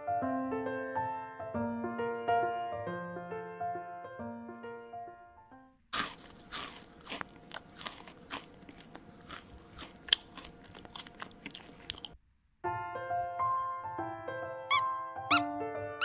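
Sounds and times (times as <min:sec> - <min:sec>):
soft piano music: 0:00.0 - 0:05.8, 0:12.6 - 0:16.0
rabbit chewing dry hay: 0:06.0 - 0:12.1.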